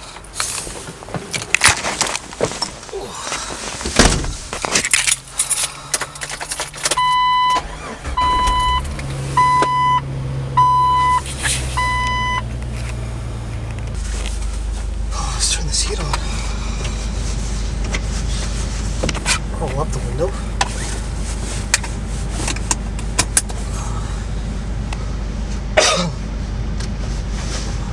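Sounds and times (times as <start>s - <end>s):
low steady engine hum: 0.0s - 27.9s
car warning chime beeps: 6.9s - 11.2s, 11.8s - 12.5s.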